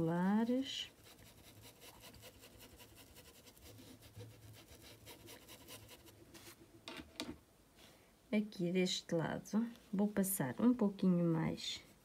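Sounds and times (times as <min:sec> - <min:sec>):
paintbrush rubbing fabric: 0:00.6 - 0:06.6.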